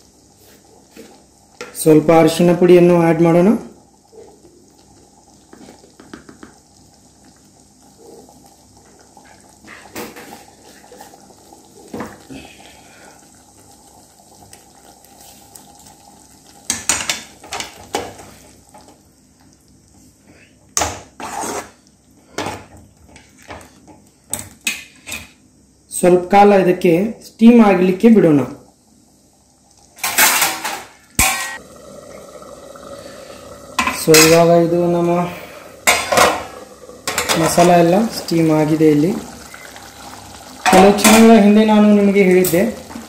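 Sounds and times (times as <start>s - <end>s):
ladle scraping a metal pan: 21.2s - 21.8s.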